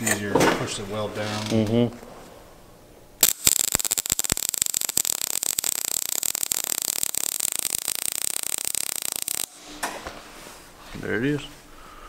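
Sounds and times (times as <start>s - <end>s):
welding arc crackling sizzle: 3.2s - 9.8s
sharp welding pops: 3.2s - 10.1s.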